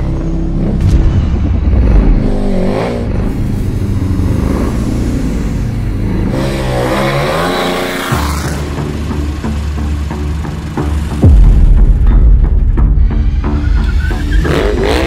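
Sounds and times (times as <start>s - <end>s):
motorcycle engine revving: 0.2s - 11.3s, 14.0s - 15.0s.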